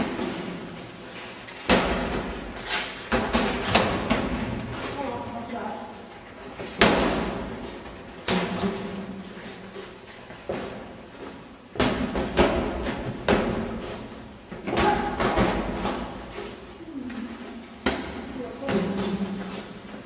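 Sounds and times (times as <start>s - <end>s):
boxing gloves thudding: 11.8s - 16.3s.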